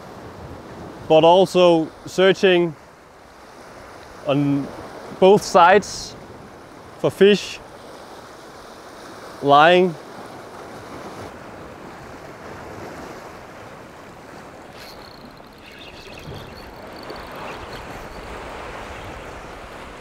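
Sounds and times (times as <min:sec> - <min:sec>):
waves washing against rocks: 0:08.0 - 0:20.0
wind buffeting microphone: 0:10.5 - 0:20.0.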